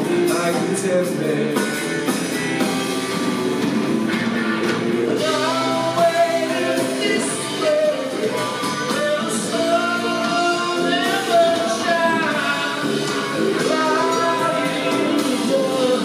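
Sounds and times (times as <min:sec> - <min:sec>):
man singing: 0:00.0 - 0:01.9, 0:05.2 - 0:16.0
drum kit: 0:00.0 - 0:16.0
electric bass: 0:00.0 - 0:16.0
electric guitar: 0:00.0 - 0:16.0.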